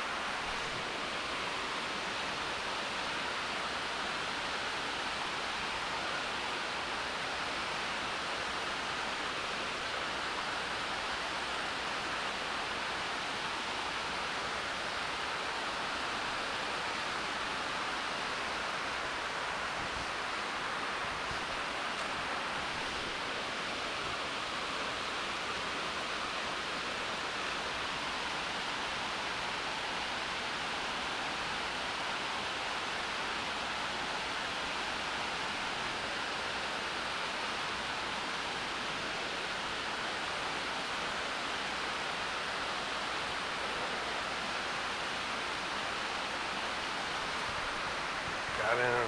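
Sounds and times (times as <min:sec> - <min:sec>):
stream water rushing: 0:00.0 - 0:49.0.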